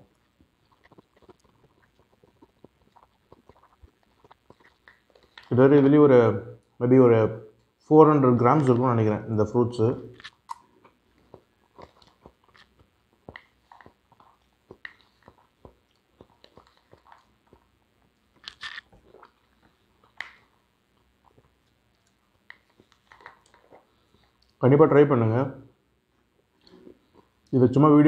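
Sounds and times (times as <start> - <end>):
person chewing fruit: 0.0 - 5.9, 10.0 - 24.6, 26.2 - 27.6.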